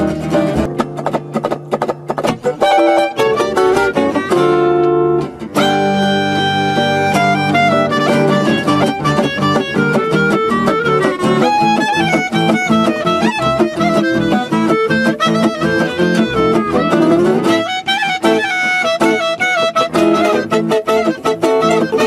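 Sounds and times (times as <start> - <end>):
acoustic guitars strumming: 0.0 - 22.0
plucked double bass: 0.0 - 22.0
clarinet melody: 2.4 - 22.0.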